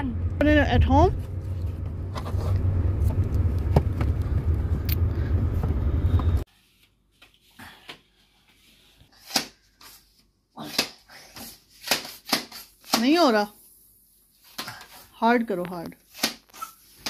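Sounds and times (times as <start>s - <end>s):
car cabin road rumble: 0.0s - 6.4s.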